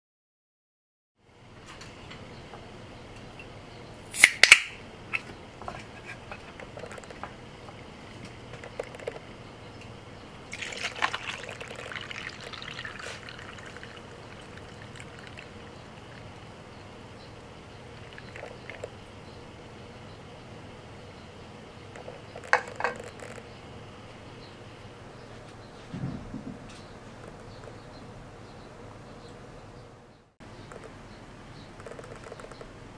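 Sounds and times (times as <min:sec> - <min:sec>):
can opening pop and hiss: 0:04.1 - 0:04.8
coffee pouring over ice: 0:10.5 - 0:16.3, 0:18.0 - 0:18.9.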